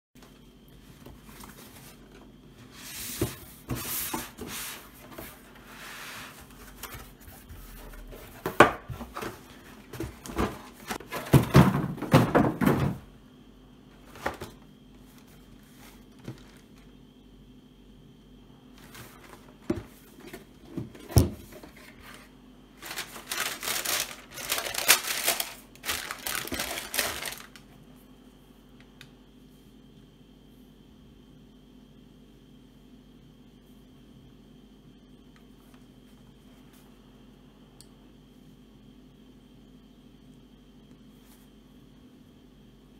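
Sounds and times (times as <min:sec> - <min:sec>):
paper rustling and crinkling: 0:14.0 - 0:16.9, 0:18.8 - 0:27.7.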